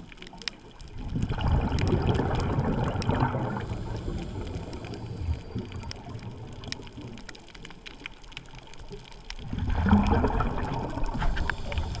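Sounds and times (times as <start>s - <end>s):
sharp underwater clicks: 0.0s - 12.0s
underwater water noise: 0.0s - 12.0s
churning gurgling water rush: 0.9s - 7.1s, 9.4s - 12.0s.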